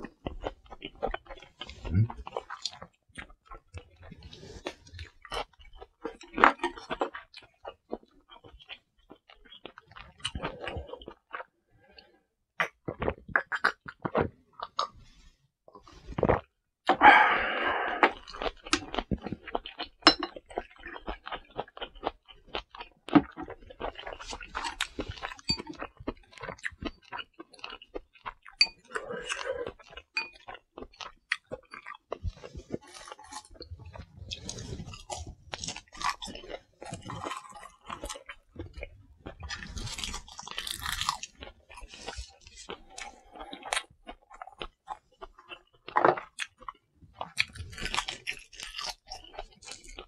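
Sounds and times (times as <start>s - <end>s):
person chewing food: 0.0s - 50.0s
loud breathy exhale: 17.0s - 18.1s.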